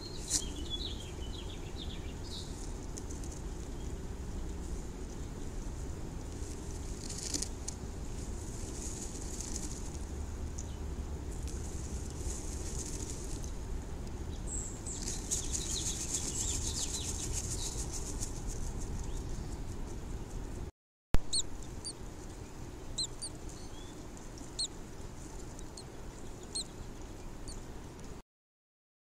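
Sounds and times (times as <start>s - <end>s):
bird chirping: 0.0s - 2.7s, 14.3s - 18.0s, 21.3s - 24.7s, 25.6s - 27.6s
rustling of nest material: 2.2s - 10.1s, 11.3s - 13.6s, 14.8s - 19.6s.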